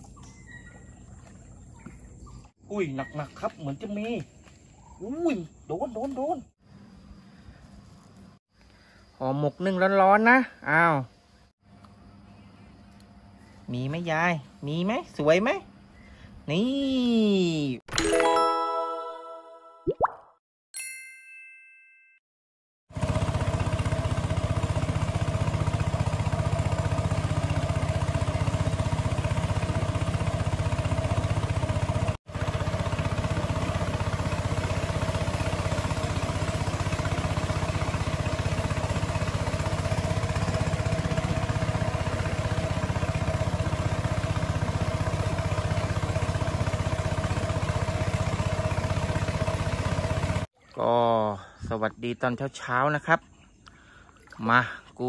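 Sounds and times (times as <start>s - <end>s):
short chime: 17.9s - 19.8s, 20.8s - 22.2s
boat engine running: 22.9s - 51.3s.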